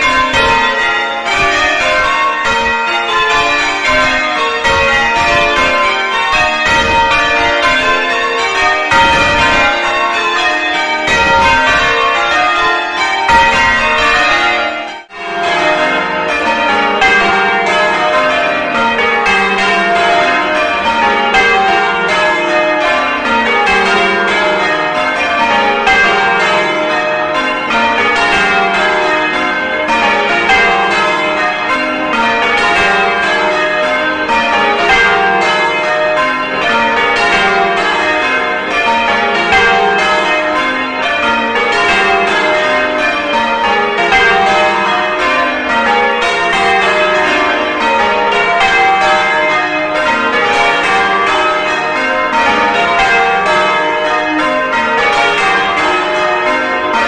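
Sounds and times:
church bells change ringing: 0:00.0 - 0:57.0.

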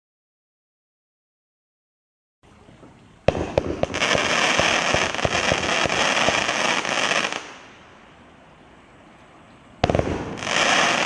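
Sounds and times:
firework sparks hissing: 0:03.4 - 0:07.7, 0:09.8 - 0:11.0.

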